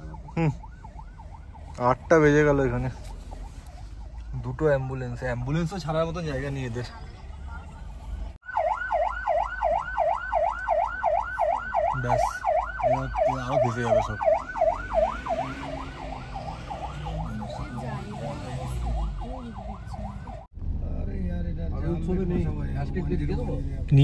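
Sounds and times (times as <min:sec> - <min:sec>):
ambulance siren warbling: 0:00.0 - 0:06.0, 0:08.4 - 0:20.5.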